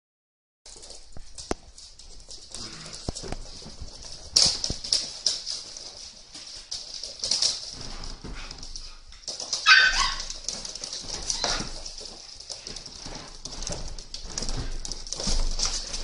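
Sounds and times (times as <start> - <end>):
paws scrabbling on wooden floor: 0.7 - 16.0
dog yelp: 9.6 - 10.4.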